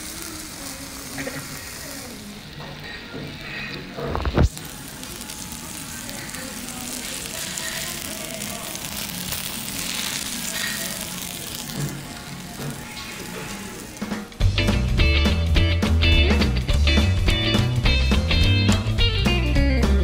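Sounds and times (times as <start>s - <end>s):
meat sizzling on hot plate: 0.0s - 15.6s.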